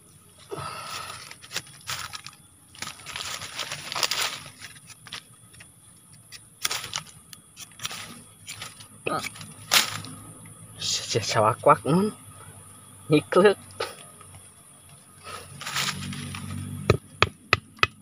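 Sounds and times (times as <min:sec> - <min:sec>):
leaves and soil scraped aside: 0:00.6 - 0:05.7, 0:06.3 - 0:10.2, 0:15.2 - 0:16.7.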